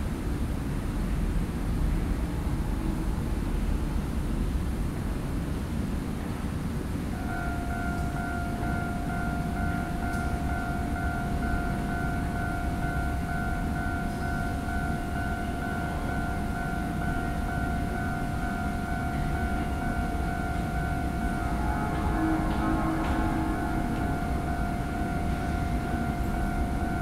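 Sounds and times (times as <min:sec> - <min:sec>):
constant low rumble: 0:00.0 - 0:27.0
steady electronic warning tone: 0:07.2 - 0:27.0.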